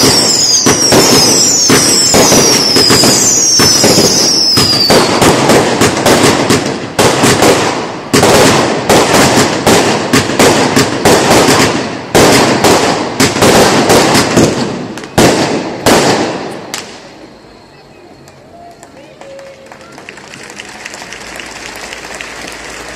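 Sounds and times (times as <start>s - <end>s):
falling firework whistle: 0.0s - 5.3s
fireworks bangs and crackling: 0.0s - 22.9s.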